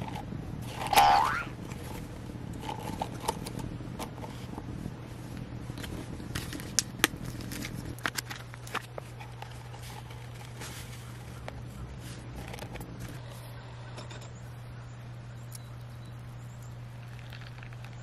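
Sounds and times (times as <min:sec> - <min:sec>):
steady low hum: 0:00.0 - 0:18.0
paper filter crinkling: 0:05.8 - 0:13.3, 0:17.0 - 0:18.0.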